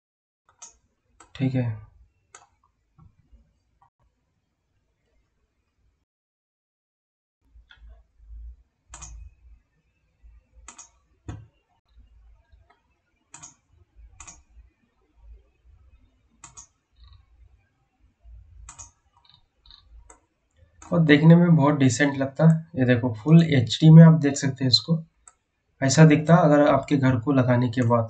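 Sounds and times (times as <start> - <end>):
computer mouse clicking: 8.9 - 9.4, 10.6 - 14.7, 16.4 - 17.3, 18.6 - 21.0.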